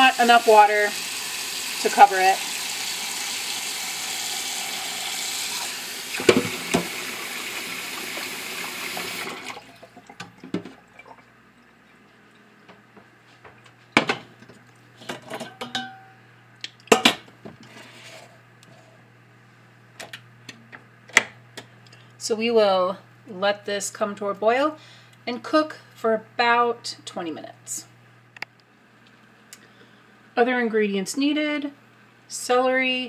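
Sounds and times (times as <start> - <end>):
tap water running into saucepan: 0.0 - 10.8
pot clanking and knocking: 15.2 - 16.1.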